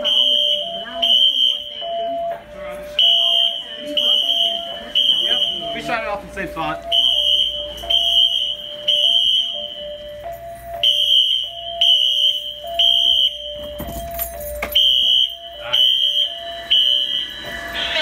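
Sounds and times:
fire alarm horn blasts: 0.0s - 2.3s, 2.9s - 14.0s, 14.7s - 18.0s
two-pitch alarm tone: 0.0s - 18.0s.

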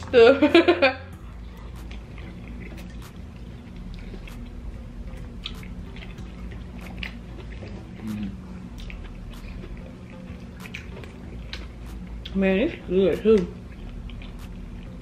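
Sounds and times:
low room hum: 0.0s - 15.0s
wet chewing mouth clicks: 1.4s - 12.4s, 13.4s - 15.0s
person humming: 8.0s - 8.5s.

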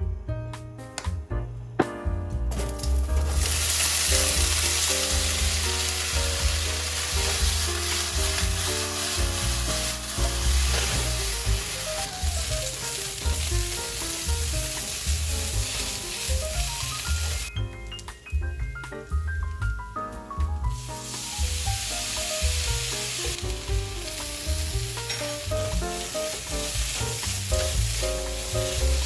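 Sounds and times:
light background music: 0.0s - 29.0s
potatoes sizzling in oil: 2.5s - 17.5s, 20.6s - 29.0s.

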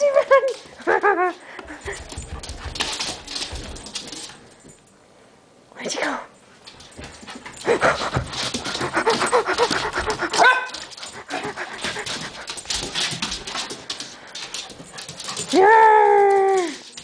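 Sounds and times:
paws clicking on wooden floor: 0.2s - 4.9s, 6.6s - 17.0s
puppy panting: 7.1s - 15.5s
puppy yipping: 10.3s - 10.8s.

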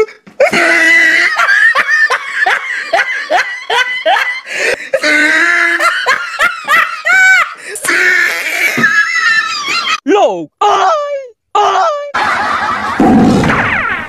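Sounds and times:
high-pitched laughter: 5.0s - 10.0s.

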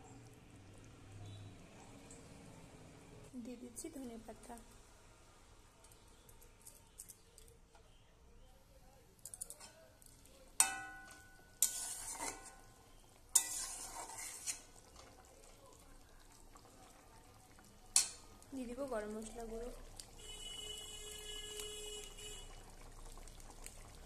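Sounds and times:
metal spatula clanking on pan: 10.6s - 14.7s, 17.9s - 18.3s
spatula scraping pan: 10.8s - 15.1s.

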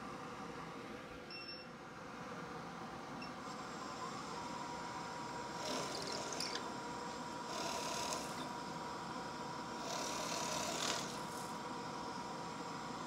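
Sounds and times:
shop vacuum whining: 5.4s - 8.9s, 9.6s - 13.0s
drill press cutting wood: 5.6s - 6.6s, 7.5s - 8.5s, 9.8s - 11.3s.

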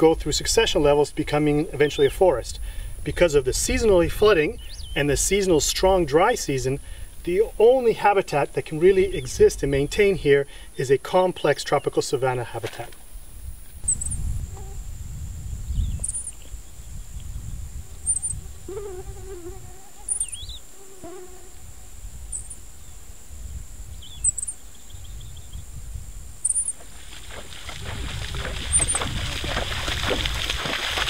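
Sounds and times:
low wind rumble: 0.0s - 11.0s, 12.9s - 20.6s, 21.6s - 31.0s
high insect drone: 0.9s - 30.2s
water splashing: 26.8s - 31.0s.

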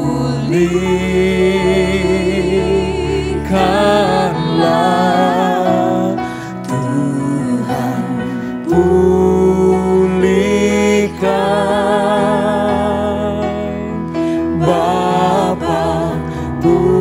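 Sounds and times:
person singing with vibrato: 0.0s - 17.0s
sustained backing chords: 0.0s - 17.0s.

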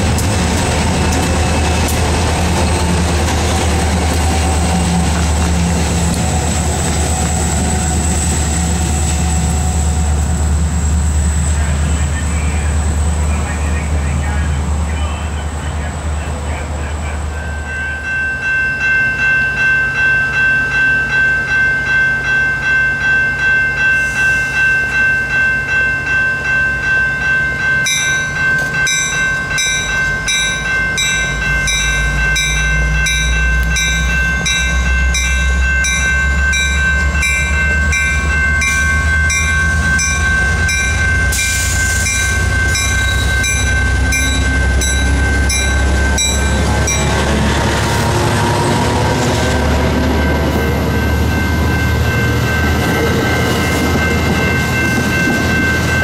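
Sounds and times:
diesel locomotive engine rumble: 0.0s - 56.0s
train passing close by: 0.0s - 56.0s
level crossing warning bell: 16.5s - 47.8s, 48.4s - 56.0s.

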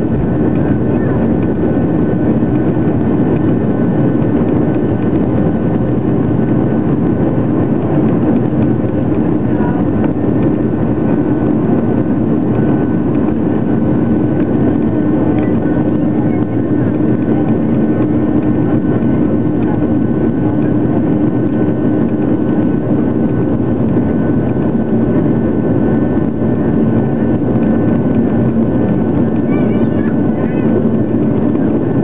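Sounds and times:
jet engines roaring: 0.0s - 32.0s.

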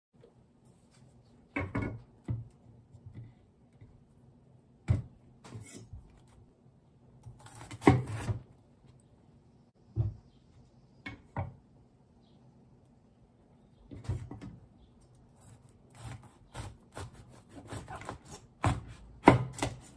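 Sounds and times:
knife cutting on wooden board: 15.4s - 19.9s.

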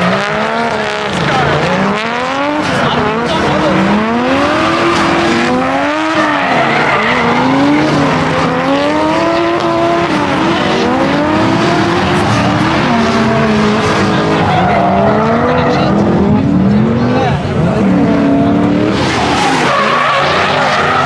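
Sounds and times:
car engines revving: 0.0s - 21.0s
tyres screeching: 4.6s - 8.8s, 18.9s - 21.0s.

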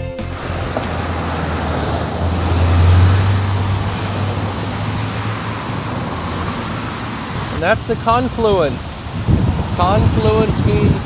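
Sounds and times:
low rumble of vehicle: 0.2s - 11.0s
passing vehicles rush: 0.2s - 11.0s.

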